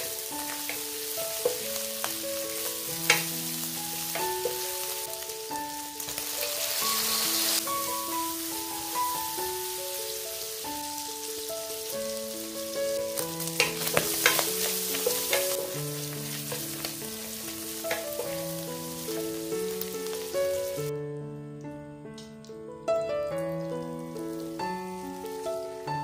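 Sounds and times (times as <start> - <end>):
meat sizzling in frying pan: 0.0 - 20.9, 23.3 - 26.0
simple background music: 0.0 - 26.0
wooden spatula scraping pan: 13.6 - 18.5.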